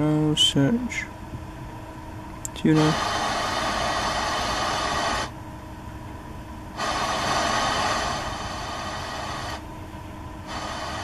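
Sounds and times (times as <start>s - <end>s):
radio static hissing: 2.5s - 5.4s, 6.7s - 9.7s, 10.4s - 11.0s.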